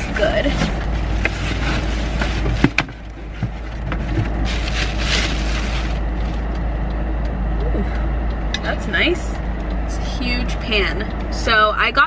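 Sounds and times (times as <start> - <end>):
steady low rumble: 0.0 - 12.0
plastic bag crinkling: 4.3 - 6.0.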